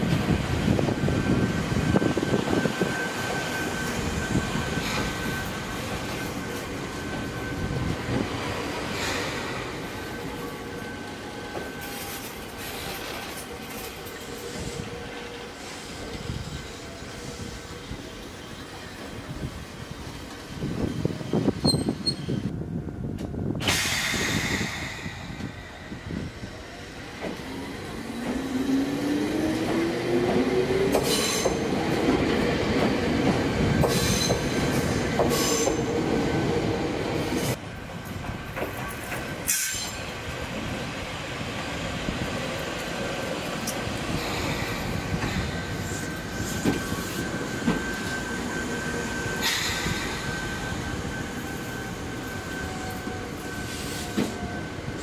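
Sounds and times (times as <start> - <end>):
train wheels running on rails: 0.0 - 55.0
wheel squeal: 21.6 - 22.5
clacks at rail joints: 29.6 - 35.9, 38.0 - 40.1.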